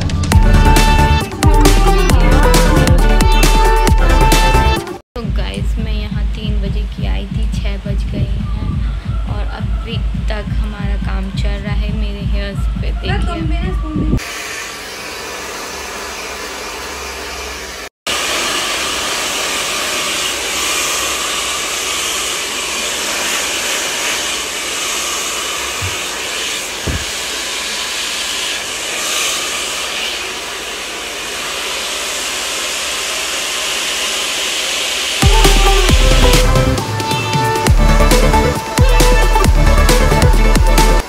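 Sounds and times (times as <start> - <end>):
music with heavy bass: 0.0 - 14.2, 35.2 - 41.0
hair dryer blowing: 7.7 - 41.0.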